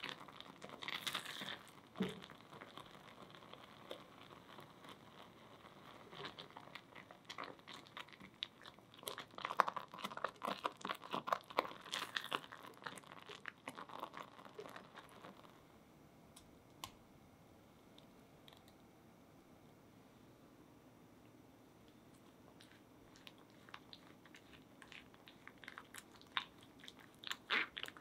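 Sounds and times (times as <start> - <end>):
puree bubbling and popping: 0.0 - 15.5, 22.5 - 28.0.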